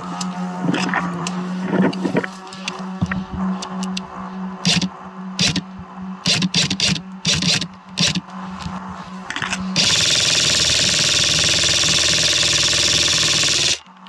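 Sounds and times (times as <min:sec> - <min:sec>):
brush rustling: 0:00.0 - 0:06.0, 0:07.1 - 0:09.8
airsoft rifle full-auto burst: 0:04.6 - 0:05.6, 0:06.3 - 0:08.2, 0:09.8 - 0:13.8.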